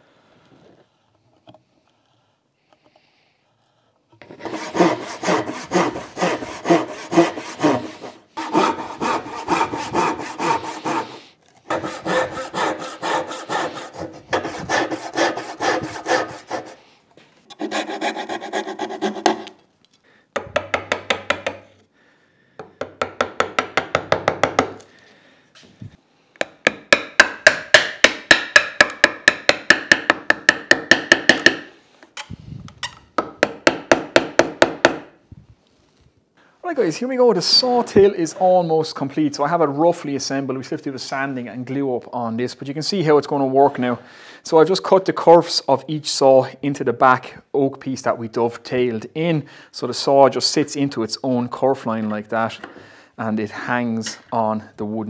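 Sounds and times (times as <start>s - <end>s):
hand saw cutting wood: 4.2s - 16.8s, 17.5s - 19.6s.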